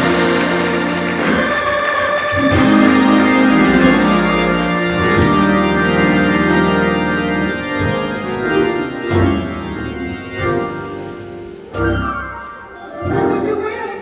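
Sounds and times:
organ playing sustained chords: 0.0 - 14.0.

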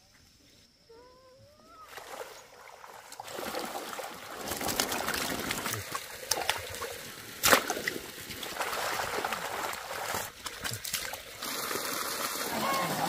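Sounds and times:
water splashing and sloshing: 1.8 - 13.0
loud sharp splash: 7.4 - 13.0.

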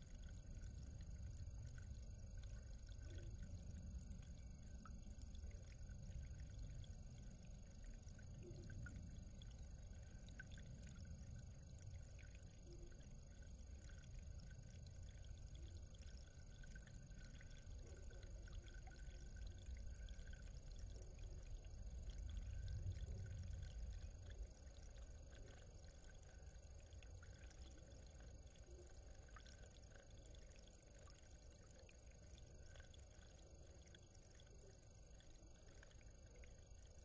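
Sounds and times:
faint low rumble: 0.0 - 37.0.

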